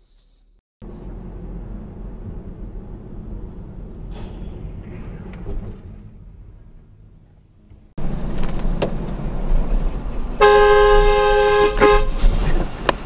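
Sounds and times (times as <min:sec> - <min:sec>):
road and engine rumble: 0:00.8 - 0:13.0
vehicle horn honking: 0:10.4 - 0:12.2.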